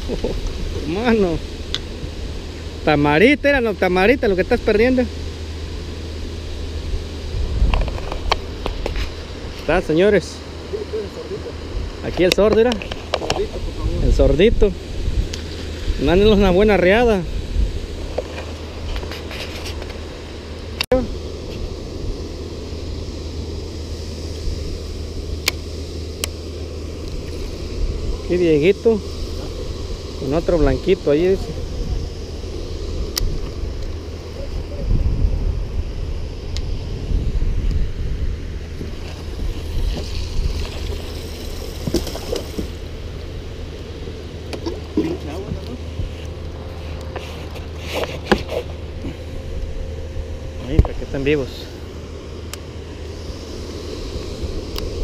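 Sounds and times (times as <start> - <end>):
wind rumbling on microphone: 0.0 - 10.4, 11.4 - 55.0
water lapping at a boat: 38.8 - 46.3.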